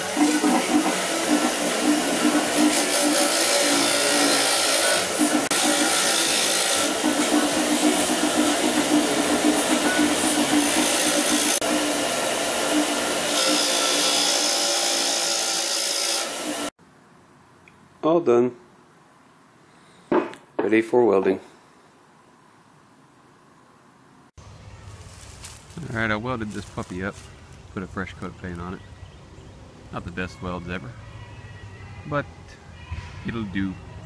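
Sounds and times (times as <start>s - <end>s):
wire wheel scratching metal: 0.0s - 11.6s
grinder motor hum: 0.0s - 16.7s.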